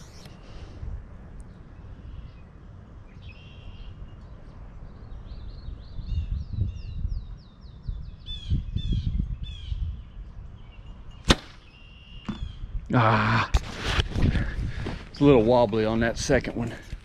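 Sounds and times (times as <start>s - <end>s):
wind rumbling on microphone: 0.0s - 11.4s, 12.1s - 17.0s
songbird whistling: 3.1s - 4.1s, 10.6s - 12.6s.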